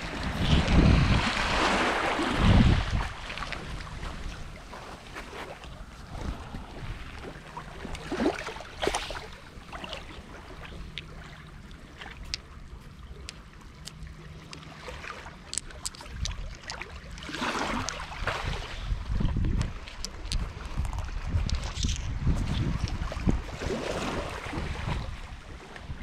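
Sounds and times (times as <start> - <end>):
waves washing in: 0.0 - 12.6, 16.7 - 19.2, 23.2 - 26.0
wind rumbling on microphone: 0.0 - 13.3, 15.4 - 26.0.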